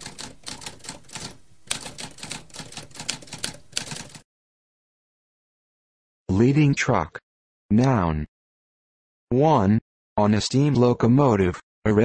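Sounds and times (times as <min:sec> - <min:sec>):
typewriter keys clattering: 0:00.0 - 0:04.2.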